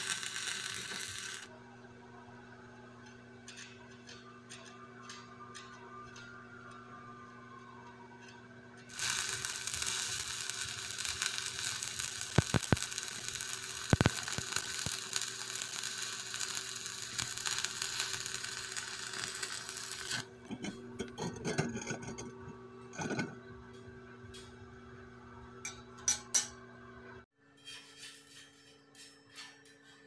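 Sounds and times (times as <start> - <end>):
welding arc crackling: 0.0 - 1.5, 8.9 - 20.3
welding arc pops: 0.0 - 1.5, 8.9 - 20.3.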